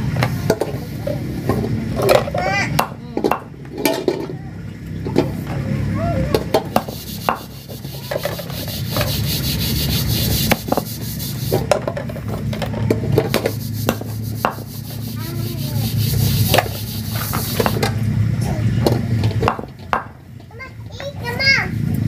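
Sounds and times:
steady low hum: 0.0s - 20.5s
knife chopping meat and bone: 13.3s - 17.8s.

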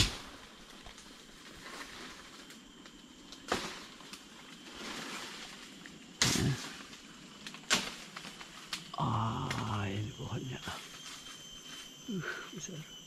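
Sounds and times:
rustling in undergrowth: 0.0s - 12.5s.

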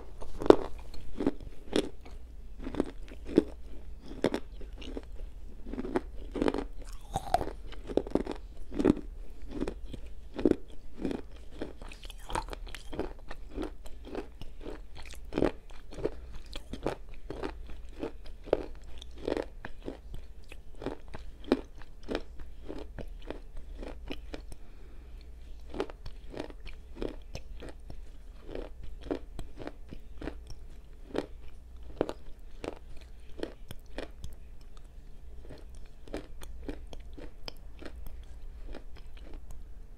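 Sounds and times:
chewing crunchy clay: 0.0s - 24.6s, 25.2s - 39.6s.

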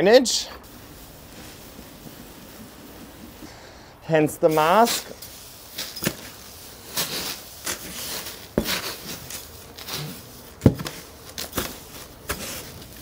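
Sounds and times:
potting mix rustling: 0.0s - 13.0s.

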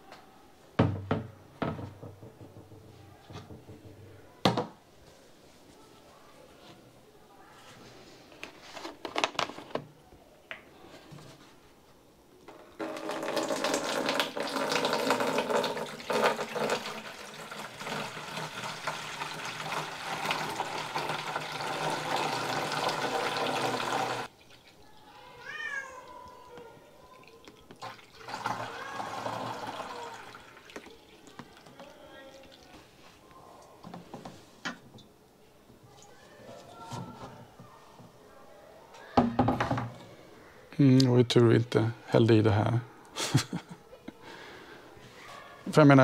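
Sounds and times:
water pouring and splashing: 12.8s - 24.8s, 27.2s - 32.8s.

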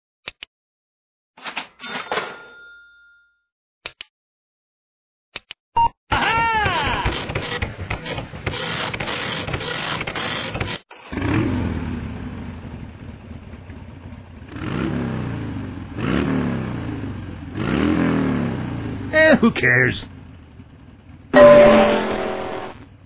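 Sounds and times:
quad bike engine revving: 7.5s - 12.7s, 14.4s - 19.2s.

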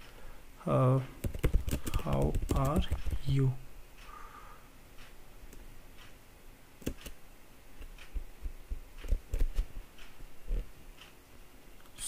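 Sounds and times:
computer keyboard key taps: 1.2s - 3.2s, 6.8s - 7.2s.

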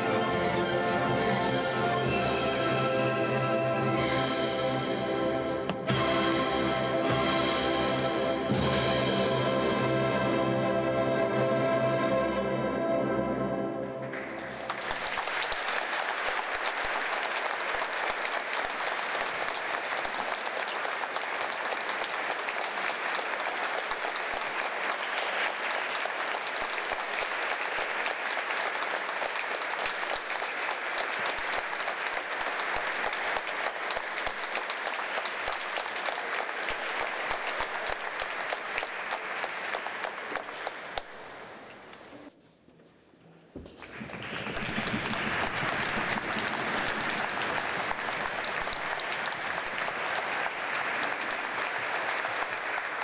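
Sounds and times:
audience applauding: 14.0s - 41.8s, 43.7s - 53.0s.

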